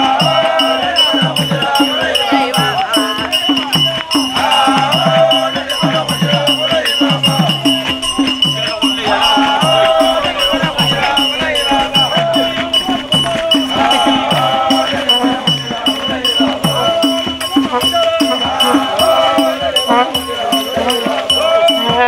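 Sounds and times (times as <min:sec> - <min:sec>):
drums beating: 0:00.0 - 0:22.0
voices singing: 0:00.0 - 0:22.0.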